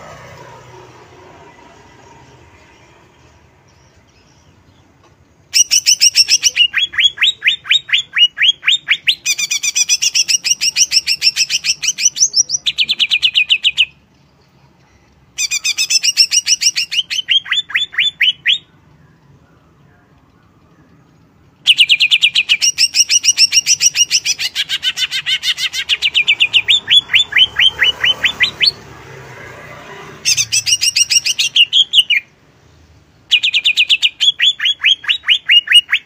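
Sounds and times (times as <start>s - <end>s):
bird singing rapid sharp notes: 1.5s - 14.5s, 15.2s - 36.0s.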